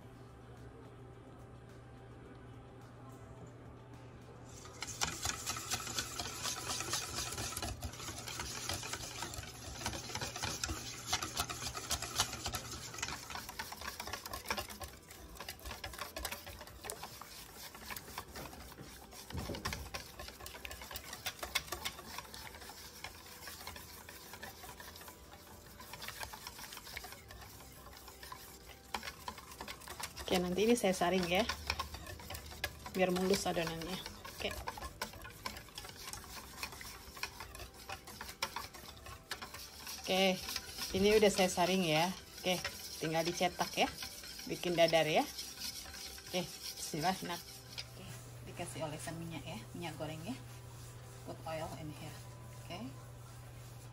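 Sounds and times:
whisk beating batter in a bowl: 4.5s - 53.9s.

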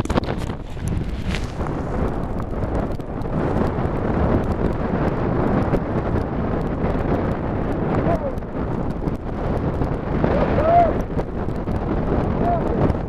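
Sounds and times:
strong wind buffeting microphone: 0.0s - 13.0s.

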